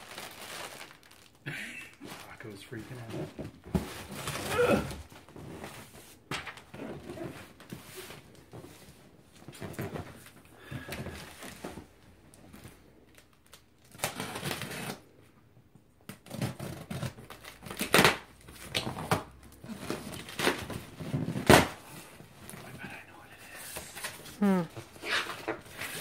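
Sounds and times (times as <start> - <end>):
knife cutting packing tape: 13.9 - 15.0, 16.1 - 21.8
cardboard scraping and rustling: 18.6 - 22.6, 23.8 - 26.0.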